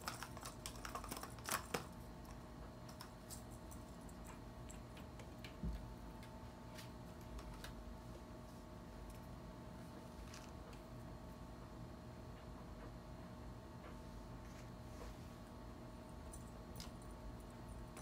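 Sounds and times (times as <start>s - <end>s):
kitten scratching and ticking: 0.0s - 6.4s.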